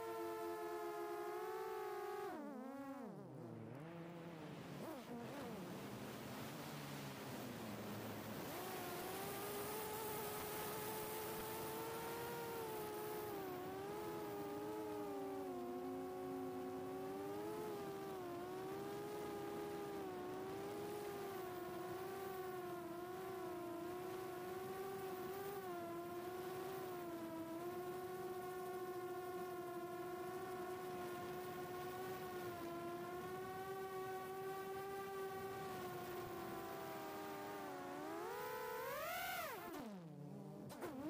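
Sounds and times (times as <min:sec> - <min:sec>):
quadcopter motors whining: 0:08.4 - 0:41.0.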